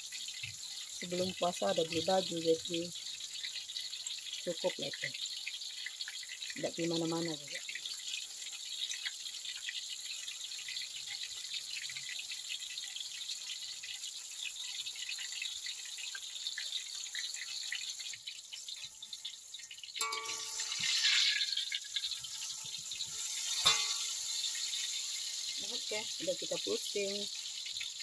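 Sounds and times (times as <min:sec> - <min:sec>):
fritters sizzling in hot oil: 0:00.0 - 0:28.0
spatula working in wok: 0:16.2 - 0:28.0
spatula knocking against wok: 0:20.0 - 0:21.0, 0:23.5 - 0:24.2.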